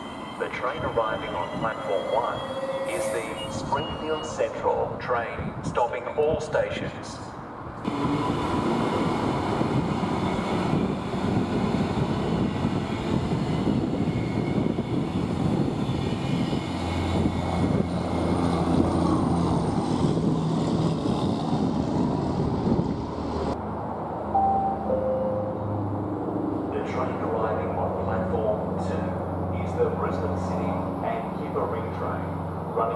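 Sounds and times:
high-pitched train whines: 0:00.0 - 0:04.8, 0:07.9 - 0:22.9, 0:24.3 - 0:29.1
train rumbling past: 0:00.0 - 0:05.6, 0:07.8 - 0:32.9.

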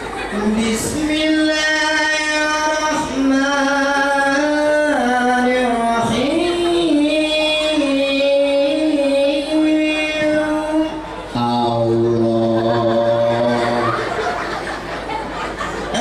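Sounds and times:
man chanting into a microphone: 0:00.3 - 0:14.0.

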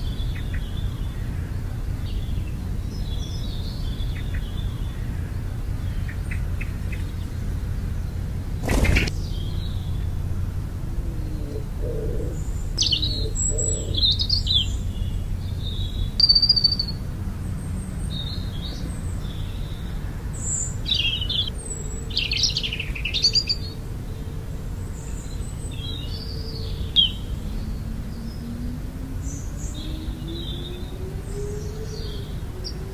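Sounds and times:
birds chirping: 0:00.0 - 0:32.9
steady low rumble: 0:00.0 - 0:32.9.

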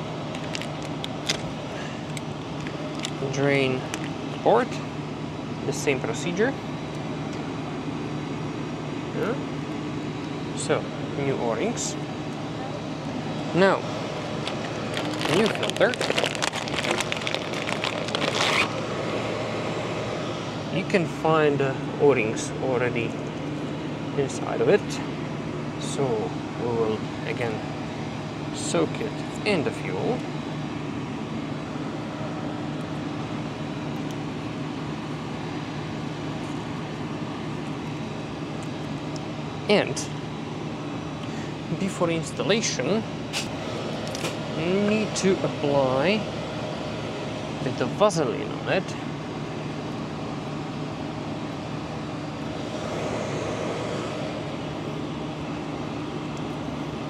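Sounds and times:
aircraft engine noise: 0:00.0 - 0:57.0
machinery hum: 0:00.0 - 0:57.0
low hum: 0:48.5 - 0:57.0.

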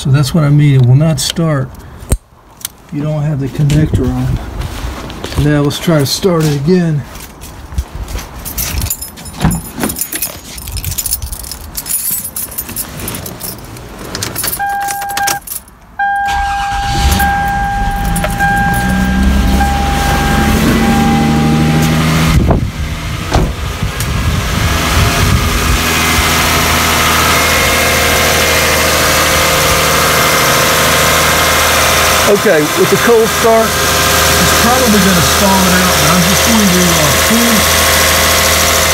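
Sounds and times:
key and door handling noises: 0:08.1 - 0:15.8
car engine starting and idling: 0:12.9 - 0:38.9
dashboard warning chime beeping: 0:14.6 - 0:22.3.

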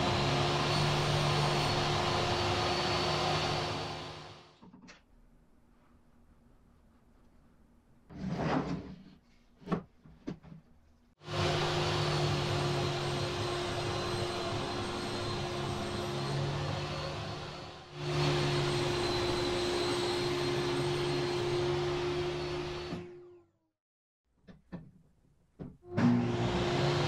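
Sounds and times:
dust collector rushing air: 0:00.0 - 0:04.4, 0:11.2 - 0:20.7.

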